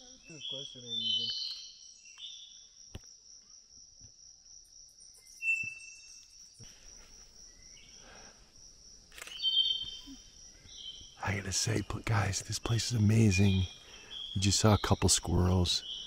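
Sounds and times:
bird chirps: 0.0s - 2.8s, 4.9s - 8.1s, 9.2s - 16.0s.

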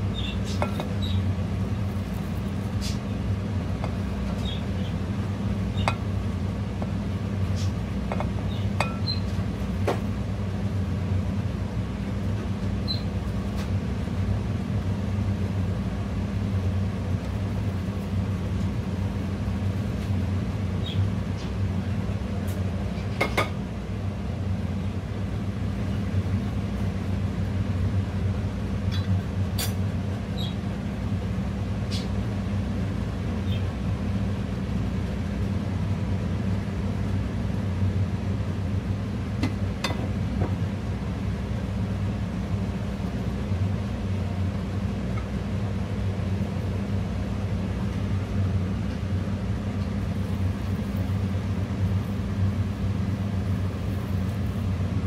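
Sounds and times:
steady low hum: 0.0s - 55.0s
clinks on a glass bowl: 8.8s - 9.1s.

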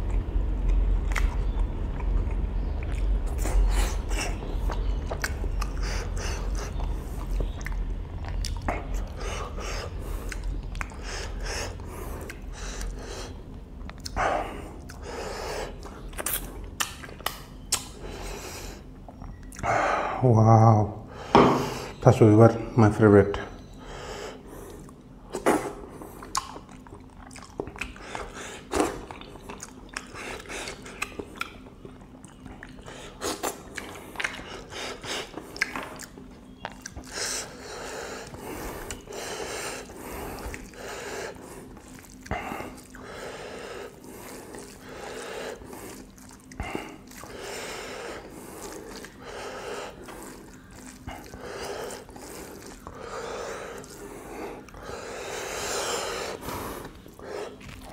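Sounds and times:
chewing and lip-smacking: 0.0s - 19.7s, 24.5s - 57.9s
fingers squelching in rice: 33.1s - 57.9s.

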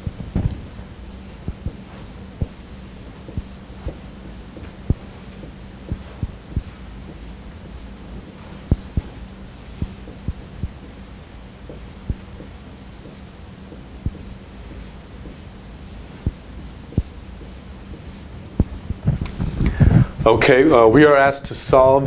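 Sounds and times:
marker scratchy strokes: 0.0s - 18.4s
steady hum: 0.0s - 22.0s
marker tip knocking on whiteboard: 1.5s - 7.9s, 8.5s - 10.7s.

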